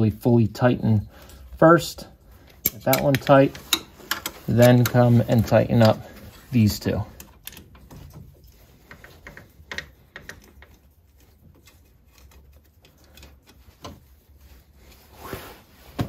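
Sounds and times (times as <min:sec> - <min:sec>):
hand tool clicking: 0:02.6 - 0:05.0.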